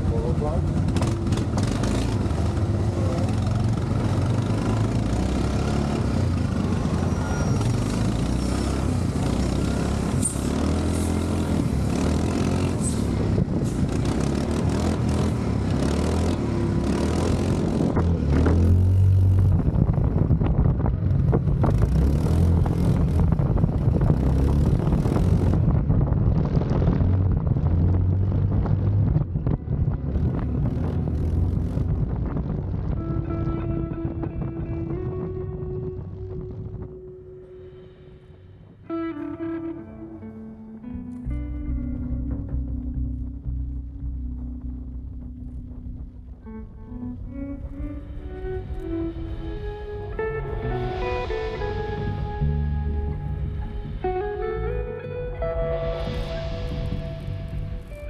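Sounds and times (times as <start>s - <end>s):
quad bike engine revving: 0.6s - 19.7s, 21.5s - 25.7s.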